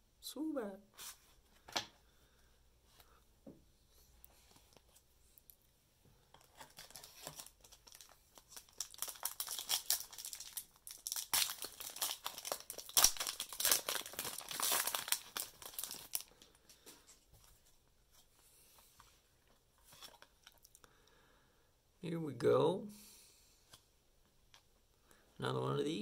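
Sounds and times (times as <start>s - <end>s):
foil wrapper crinkling and tearing: 6.4s - 16.6s.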